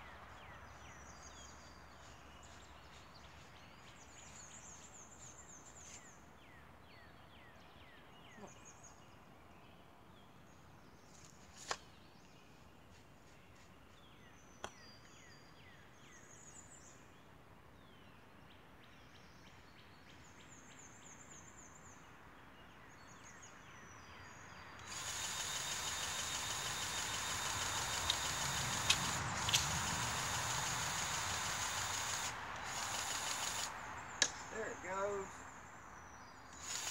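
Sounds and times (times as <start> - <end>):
birds chirping: 22.7 - 36.9
powered grease gun buzzing: 24.8 - 33.8, 36.6 - 36.9
sharp clicks: 24.8 - 34.5, 36.6 - 36.9.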